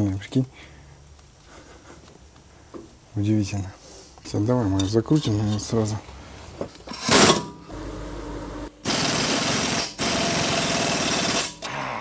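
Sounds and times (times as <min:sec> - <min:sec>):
pneumatic impact wrench hammering: 0:06.9 - 0:07.6, 0:08.8 - 0:12.0.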